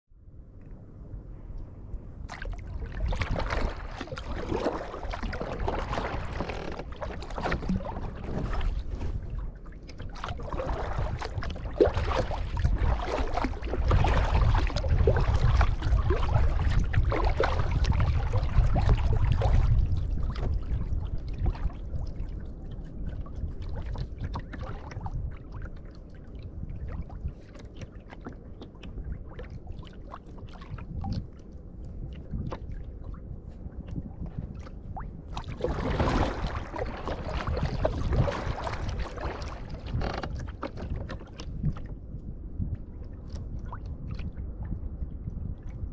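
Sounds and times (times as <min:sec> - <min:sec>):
paddle splashing in water: 0:02.2 - 0:42.1
low rumble: 0:30.5 - 0:45.9.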